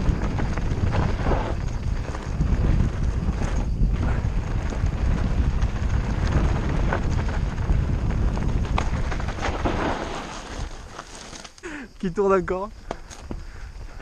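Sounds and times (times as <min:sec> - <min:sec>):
wind buffeting microphone: 0:00.0 - 0:11.0
bike clicks and rattles: 0:00.0 - 0:11.8, 0:12.8 - 0:14.0
bike tyres rumbling on dirt: 0:00.0 - 0:14.0.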